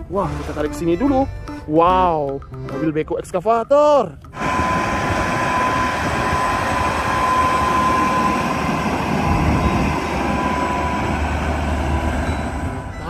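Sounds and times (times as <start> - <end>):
high steady tone: 4.3 - 13.0
truck diesel engine drone: 4.3 - 13.0.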